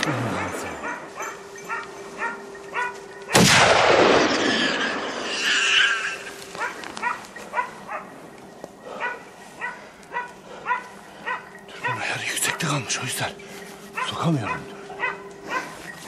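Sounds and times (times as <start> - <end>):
dogs barking: 0.0 - 3.4, 6.3 - 13.2, 13.8 - 16.0
gunshot echoing: 3.3 - 5.1.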